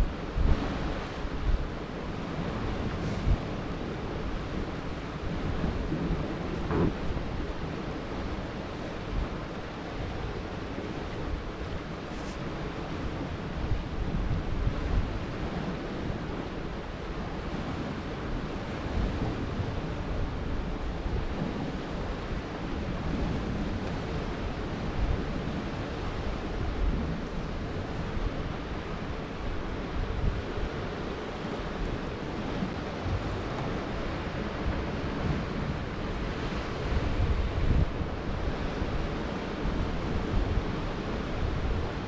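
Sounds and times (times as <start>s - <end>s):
wind gusting on microphone: 0.0s - 42.0s.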